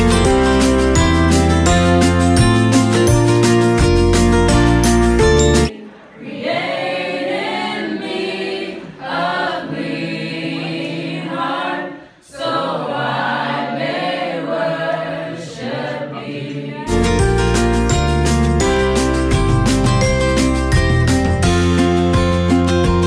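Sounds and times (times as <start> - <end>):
background music track: 0.0 - 11.8, 12.5 - 23.0
women singing a cappella: 5.7 - 16.9.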